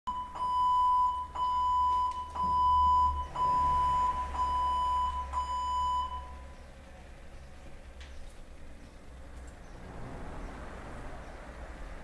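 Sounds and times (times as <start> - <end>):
high electronic beep tone: 0.1 - 6.4.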